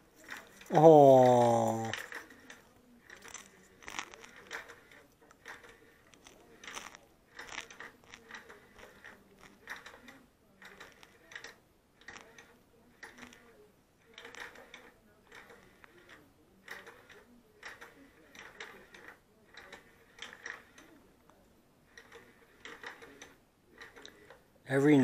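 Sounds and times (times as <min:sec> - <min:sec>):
cat chewing popcorn: 0:00.1 - 0:13.5.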